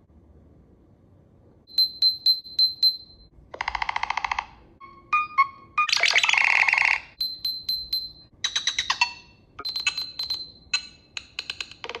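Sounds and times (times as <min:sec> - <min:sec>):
electronic phone ringtone: 0:04.8 - 0:09.0.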